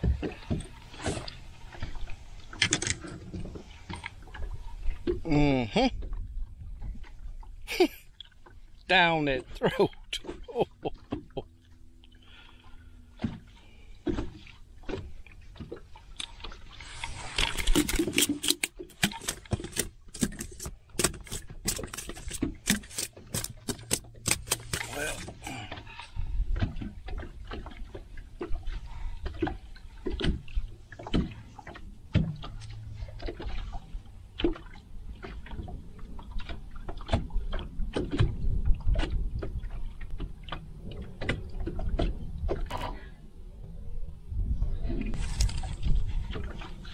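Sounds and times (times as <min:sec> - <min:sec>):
knocks and clicks of handling: 0:17.4 - 0:25.4.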